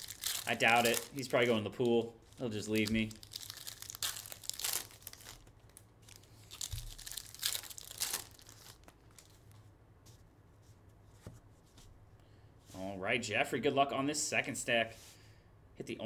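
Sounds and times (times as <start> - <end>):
wrappers torn and crinkled: 0.0 - 9.4.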